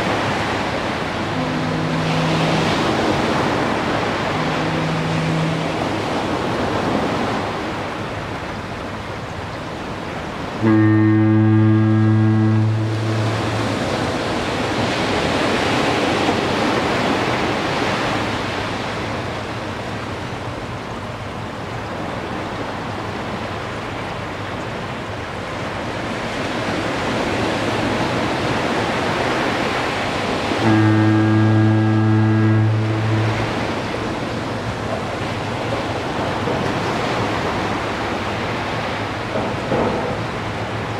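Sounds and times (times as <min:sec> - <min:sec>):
ocean surf on sandy beach: 0:00.0 - 0:40.9
foghorn blast: 0:00.1 - 0:07.4, 0:10.5 - 0:16.3, 0:30.4 - 0:35.3.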